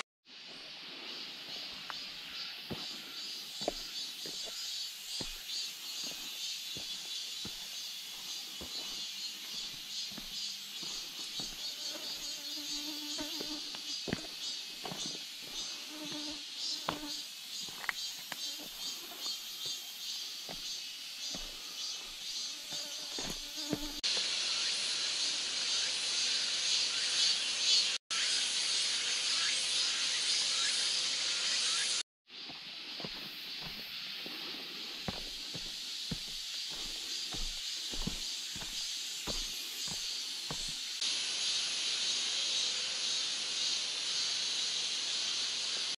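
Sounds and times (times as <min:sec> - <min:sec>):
forest insects chorus: 0:00.3 - 0:46.0
footsteps on rocky path: 0:01.8 - 0:12.3, 0:13.1 - 0:24.0, 0:32.5 - 0:41.0.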